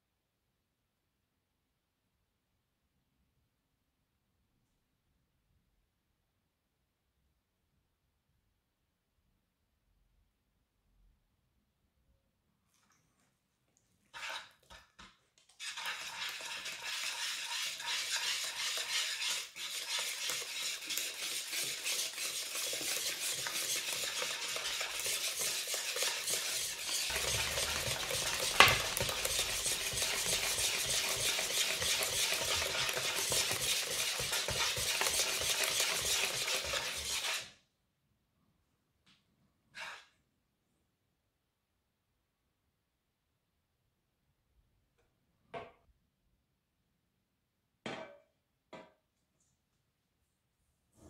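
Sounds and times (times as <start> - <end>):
whisk rattling against bowl: 15.6 - 37.4
whisk knocking on bowl: 15.7 - 37.4.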